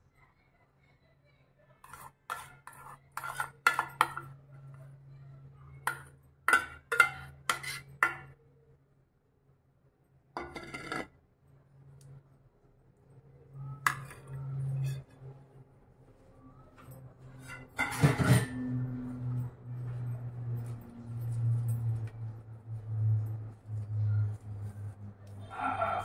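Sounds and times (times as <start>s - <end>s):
spoon scraping metal bowl: 1.8s - 4.4s, 5.9s - 8.3s, 10.4s - 11.1s, 13.7s - 15.3s
spoon clinking on metal bowl: 5.9s - 8.3s.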